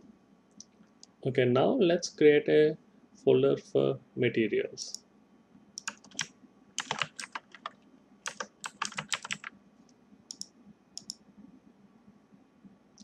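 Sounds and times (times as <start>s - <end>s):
computer keyboard typing: 5.8s - 9.5s.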